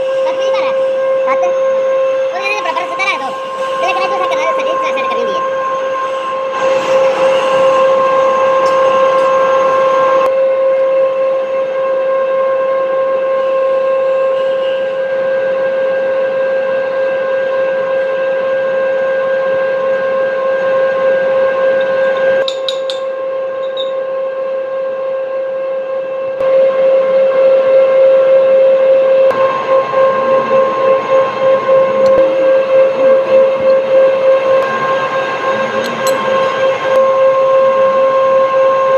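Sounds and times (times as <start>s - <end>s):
machining noise: 0.0s - 10.3s, 29.2s - 38.9s
metal lathe whine: 0.0s - 38.9s.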